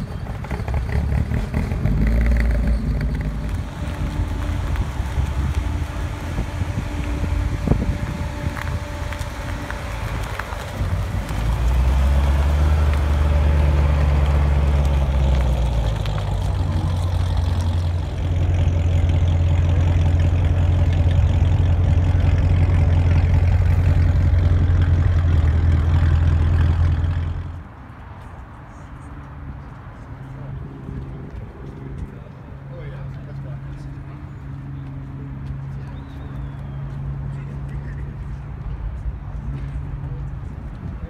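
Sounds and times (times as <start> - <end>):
car engine pulling away: 0.0 - 27.7
deep car engine idle: 15.4 - 27.4.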